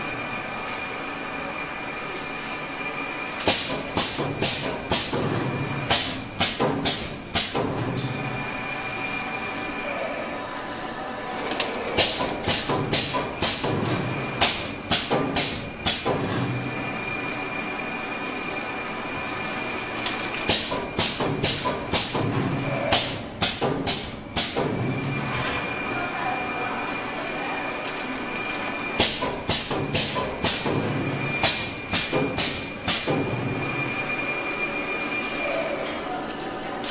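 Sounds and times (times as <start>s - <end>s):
machine hiss: 3.4s - 7.7s, 12.0s - 17.7s, 20.4s - 25.8s, 29.0s - 34.7s.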